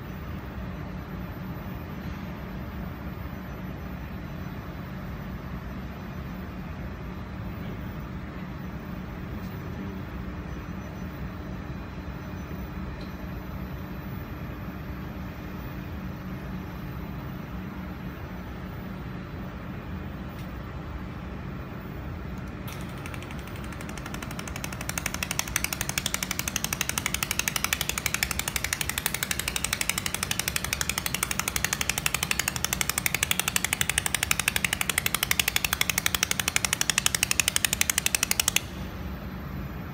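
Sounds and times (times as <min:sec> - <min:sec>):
machine hum: 0:15.6 - 0:39.9
laser welder ticking pulses: 0:22.4 - 0:39.1.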